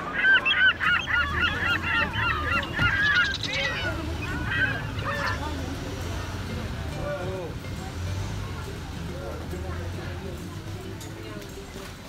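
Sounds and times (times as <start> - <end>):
flock of birds honking: 0.0 - 6.6.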